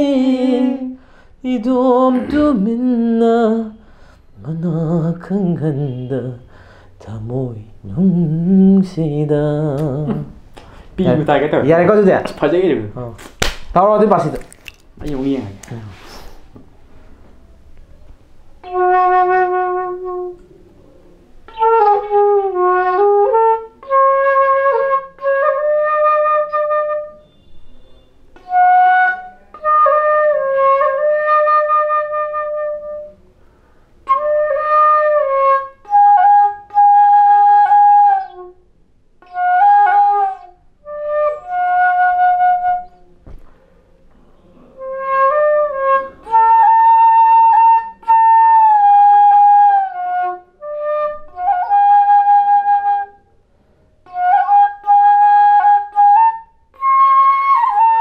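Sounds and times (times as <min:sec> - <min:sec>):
solo flute melody: 0:00.0 - 0:01.0, 0:04.4 - 0:06.5, 0:18.5 - 0:20.6, 0:21.5 - 0:33.2, 0:34.0 - 0:38.6, 0:39.2 - 0:43.2, 0:44.7 - 0:53.4, 0:54.0 - 0:58.0.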